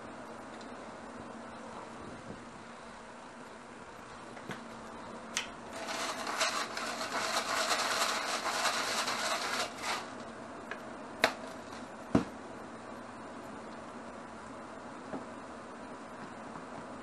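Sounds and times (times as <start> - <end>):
pepper grinder grinding: 5.7 - 10.2.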